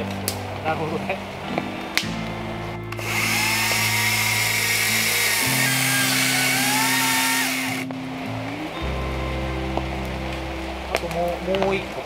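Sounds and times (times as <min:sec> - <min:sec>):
background music: 0:00.0 - 0:12.0
power tool motor whining: 0:03.0 - 0:07.9.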